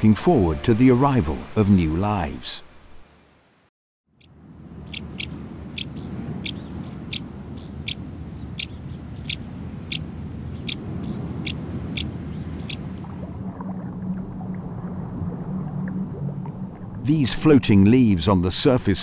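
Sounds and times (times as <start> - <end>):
bird calling: 4.2 - 12.9.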